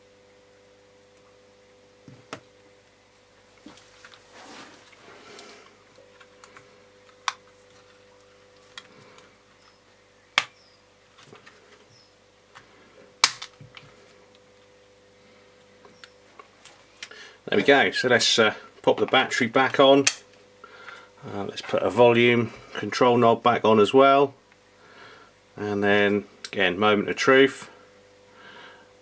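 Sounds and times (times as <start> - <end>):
soft handling rustle: 3.2 - 9.9.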